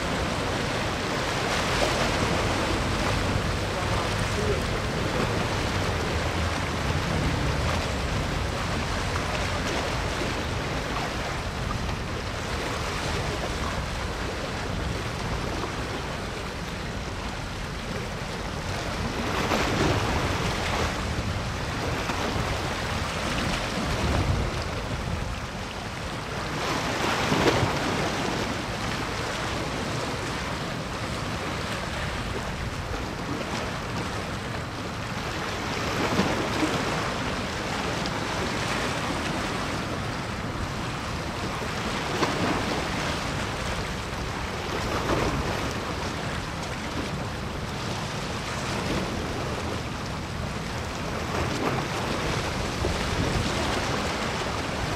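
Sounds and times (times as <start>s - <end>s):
wind on microphone: 0.0s - 30.4s
waves washing: 0.0s - 54.9s.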